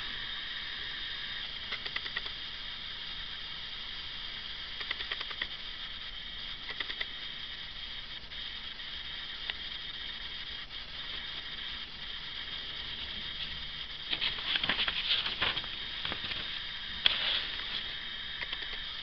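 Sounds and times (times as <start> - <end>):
steady high hiss: 0.0 - 19.0
magazine pages rustling: 14.1 - 17.9.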